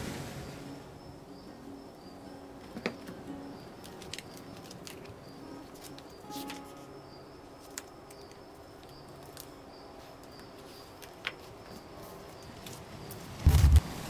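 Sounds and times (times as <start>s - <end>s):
faint high chirp: 0.4s - 11.0s
paper pages rustling: 3.8s - 6.9s, 7.6s - 8.3s.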